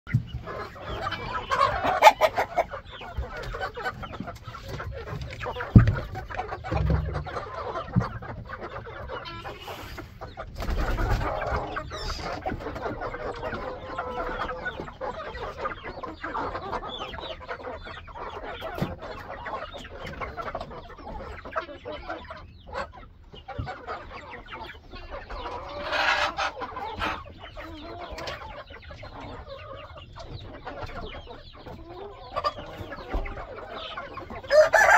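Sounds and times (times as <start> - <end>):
chickens clucking and calling: 0.1 - 34.9
low thumps: 5.7 - 7.4.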